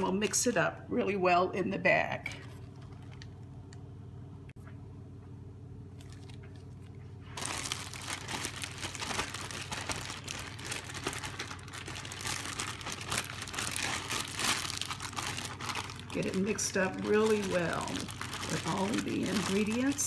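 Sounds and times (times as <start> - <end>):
low steady hum: 0.0 - 20.0
plastic food bag crinkling: 2.3 - 3.5, 5.9 - 20.0.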